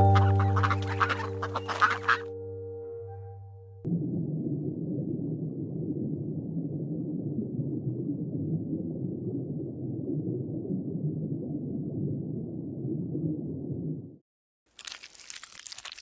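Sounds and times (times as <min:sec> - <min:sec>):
muffled underwater water rumble: 0:03.1 - 0:14.2.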